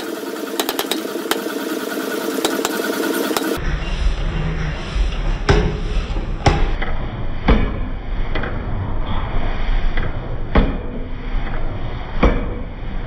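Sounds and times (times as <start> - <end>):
forging hammer striking steel: 0.0 - 3.6
low machine running rumble: 0.0 - 13.0.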